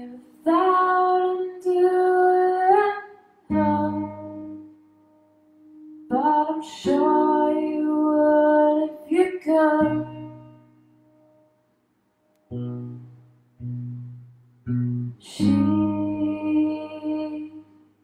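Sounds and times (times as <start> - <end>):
woman singing: 0.0 - 4.8, 5.9 - 10.7, 15.1 - 17.9.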